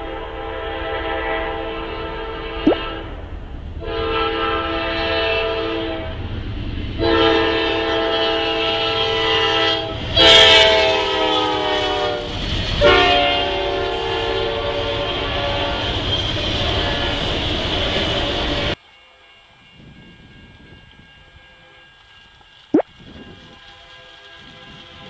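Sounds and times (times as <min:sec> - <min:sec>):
locomotive air horn blasts: 0:07.0 - 0:15.7.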